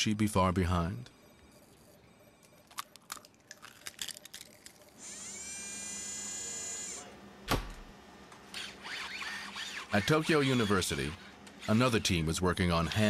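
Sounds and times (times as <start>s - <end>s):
small electric motor whining: 4.8s - 7.2s, 8.5s - 12.2s.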